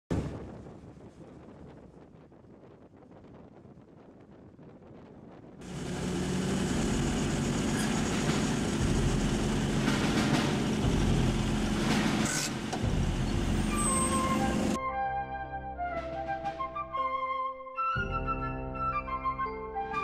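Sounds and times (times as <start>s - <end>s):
jeep engines running: 5.6s - 14.8s.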